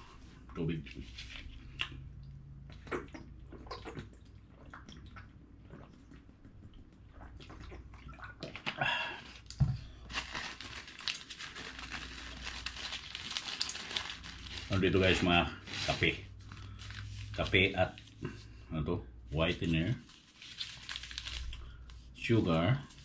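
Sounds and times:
person gulping: 1.7 - 9.6
paper packets crinkling: 10.0 - 18.1, 19.4 - 22.1.

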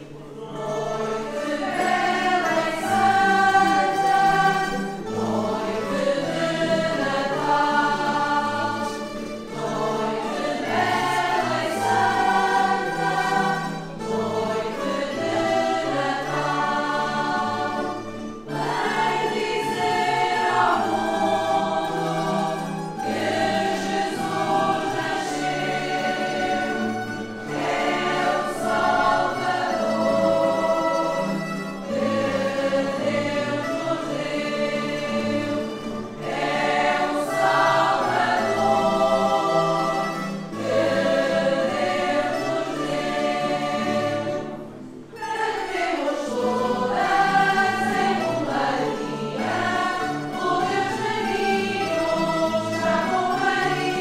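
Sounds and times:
group singing a religious song: 0.0 - 54.0
small stringed instruments: 0.0 - 54.0.

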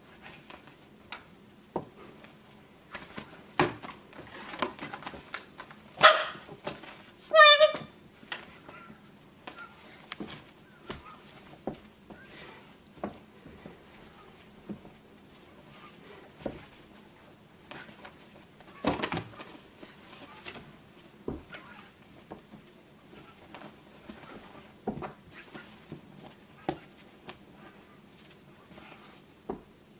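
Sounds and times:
fabric rustling: 8.0 - 29.9.

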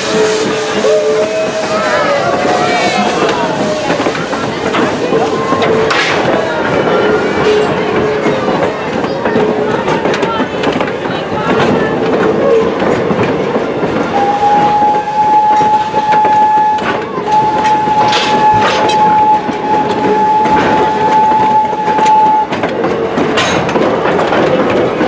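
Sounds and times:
steam locomotive whistle: 0.0 - 10.2, 14.0 - 22.6
moving train rumble and clatter: 0.0 - 25.0.

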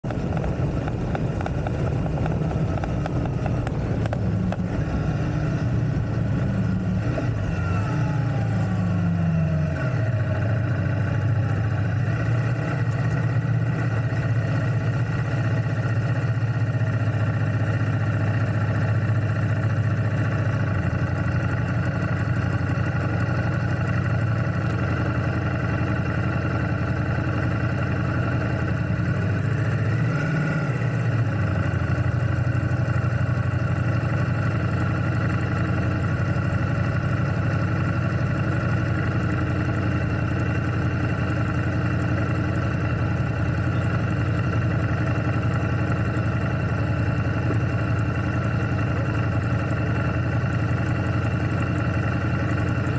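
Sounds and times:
motorcycle engine running: 0.0 - 52.9.

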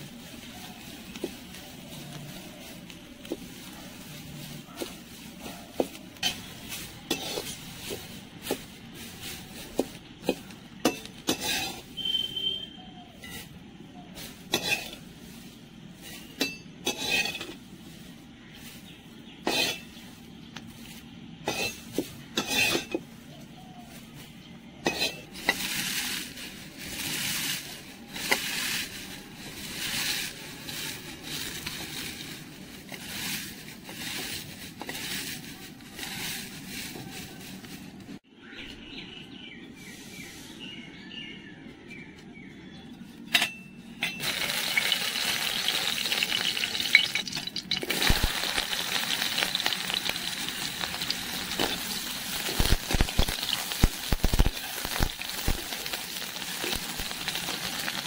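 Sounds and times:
dry leaves crumbled by hand: 0.0 - 39.6, 44.2 - 58.0
skimmer scraping metal pan: 10.2 - 12.3, 16.0 - 17.7, 19.4 - 20.0.

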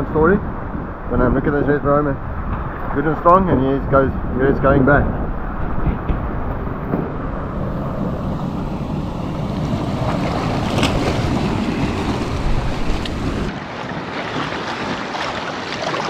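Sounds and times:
wind rumbling on microphone: 0.0 - 16.0
surf foaming through rocks: 7.4 - 16.0.

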